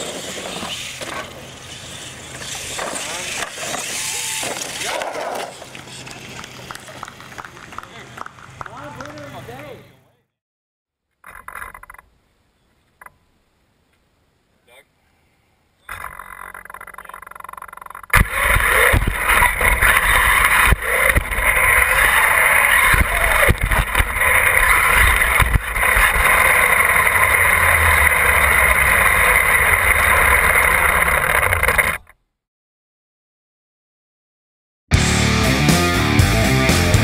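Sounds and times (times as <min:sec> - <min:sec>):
toy truck motor hum: 0:15.9 - 0:32.1
chassis knocks: 0:18.1 - 0:32.0
truck racing over gravel: 0:18.2 - 0:32.0.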